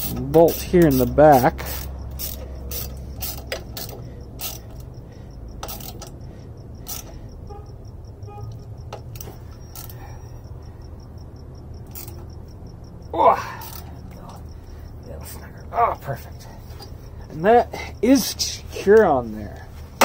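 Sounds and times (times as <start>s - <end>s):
metallic clicks and taps of tools: 0.0s - 7.3s, 8.5s - 10.0s, 11.8s - 12.4s
low steady hum: 0.0s - 19.9s.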